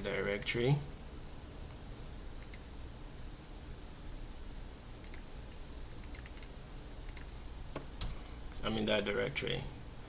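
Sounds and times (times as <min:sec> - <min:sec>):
faint room hum: 0:00.0 - 0:10.0
mouse and keyboard clicks: 0:05.0 - 0:05.2, 0:06.0 - 0:06.5, 0:07.1 - 0:07.3.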